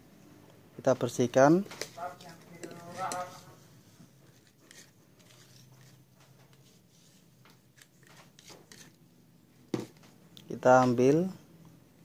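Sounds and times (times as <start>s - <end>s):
card scraping paint off stick: 7.7s - 9.0s.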